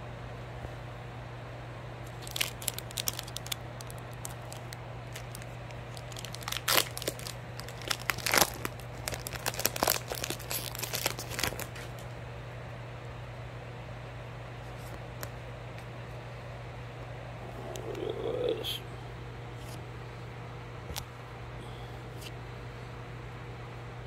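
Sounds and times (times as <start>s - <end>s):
foil pack crinkling and tearing: 2.0s - 12.1s.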